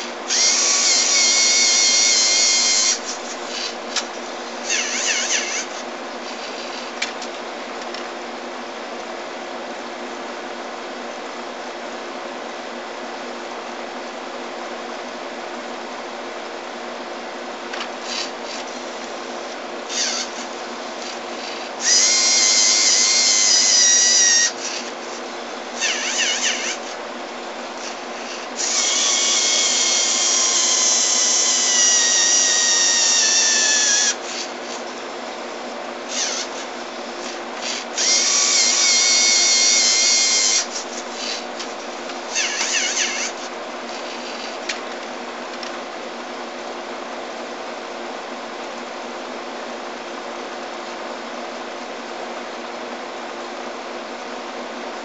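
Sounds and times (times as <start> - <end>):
electric motors whining: 0.0 - 8.1, 16.0 - 46.8
quiet whirring bursts: 0.0 - 55.0.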